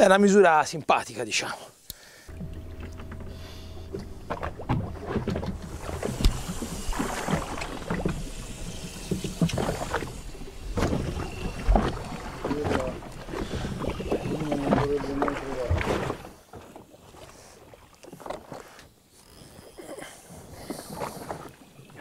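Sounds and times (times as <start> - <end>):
low steady hum: 1.8 - 15.8.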